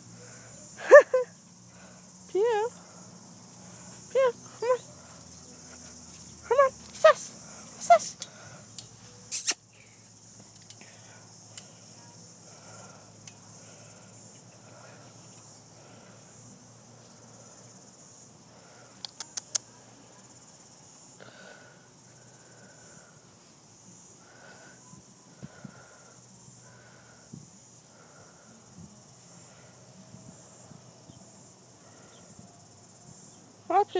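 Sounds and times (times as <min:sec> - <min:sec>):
insects chirring: 0:00.0 - 0:33.9
sharp clicks: 0:19.0 - 0:19.6.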